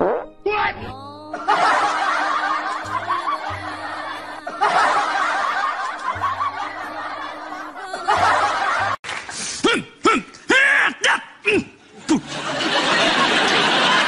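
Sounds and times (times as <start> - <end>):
background music: 0.0 - 10.5.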